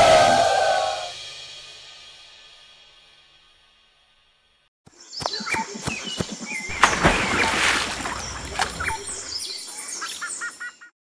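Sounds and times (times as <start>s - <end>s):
birds chirping: 4.9s - 10.9s
water splashing: 6.7s - 9.4s.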